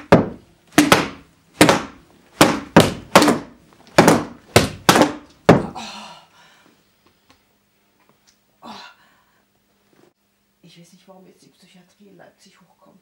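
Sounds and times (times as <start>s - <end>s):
tube whacking mattresses: 0.0s - 5.8s.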